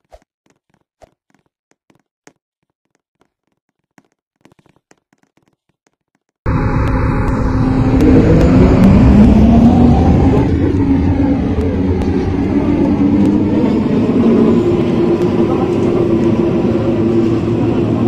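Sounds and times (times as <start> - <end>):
electric train rumble and whine: 6.5 - 18.0.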